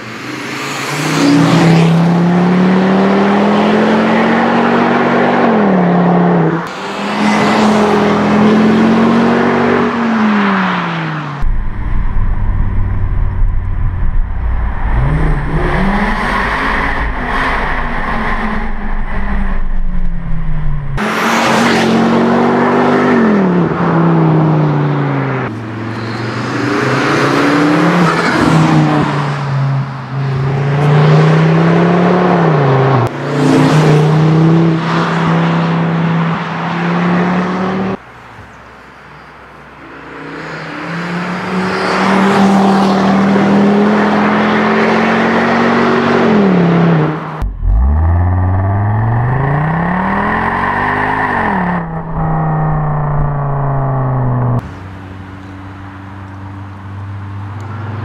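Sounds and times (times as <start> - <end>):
car engine accelerating hard: 0.8 - 25.5, 40.9 - 54.9
low boom inside car: 11.4 - 15.6.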